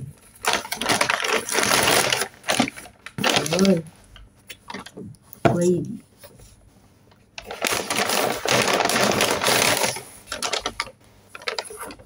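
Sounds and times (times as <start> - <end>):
paper bag rustling and crinkling: 0.2 - 3.9, 7.4 - 12.0.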